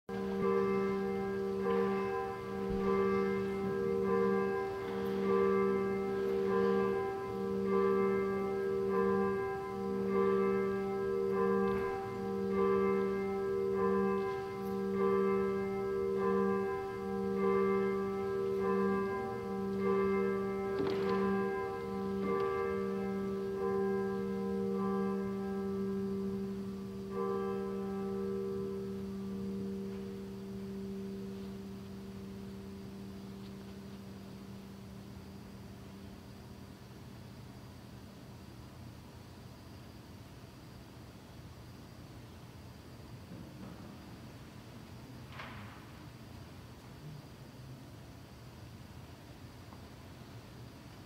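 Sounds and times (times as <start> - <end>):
church bell ringing: 0.1 - 37.1.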